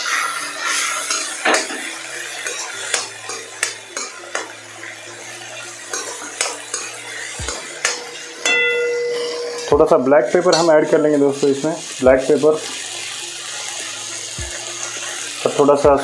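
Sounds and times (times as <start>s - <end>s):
metal utensil scraping pan: 0.0s - 4.6s, 5.6s - 11.7s
food sizzling: 0.0s - 16.0s.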